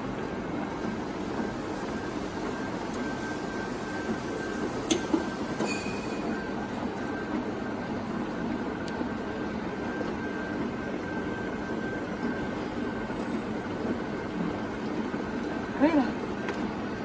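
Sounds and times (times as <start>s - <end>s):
thin steady whine: 0.0s - 17.0s.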